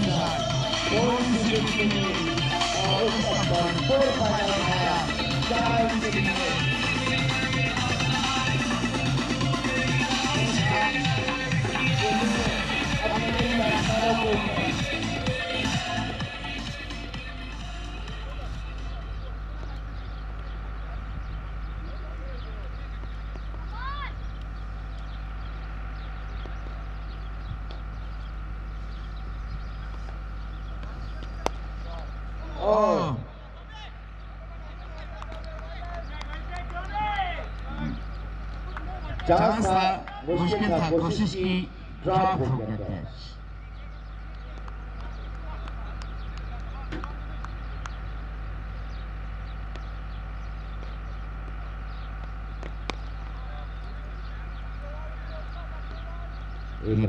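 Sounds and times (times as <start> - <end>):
low rumble and hum: 0.0 - 57.0
small bird chirps: 18.8 - 32.5, 43.5 - 57.0.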